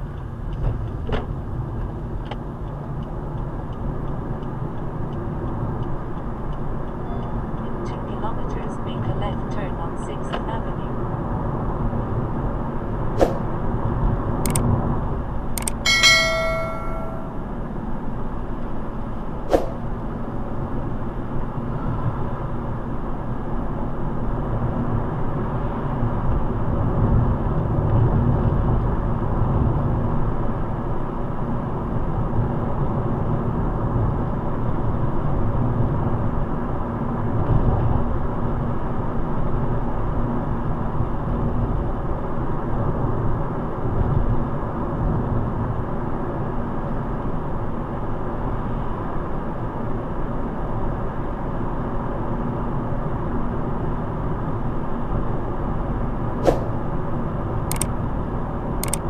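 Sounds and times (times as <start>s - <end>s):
car road and engine noise: 0.0s - 59.0s
sharp clicks: 15.6s - 16.1s
short ringing chime: 15.6s - 17.5s.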